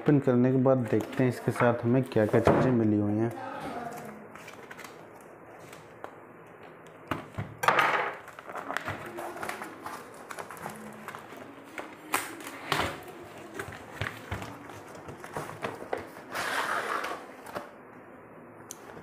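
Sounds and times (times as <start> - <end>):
cardboard rustling and tapping: 8.2 - 16.2.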